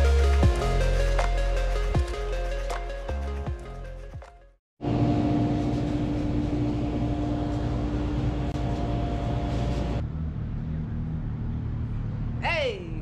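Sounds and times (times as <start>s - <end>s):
electrical hum: 4.8s - 10.0s
vehicle engine rumble: 4.8s - 13.0s
street noise: 6.0s - 13.0s.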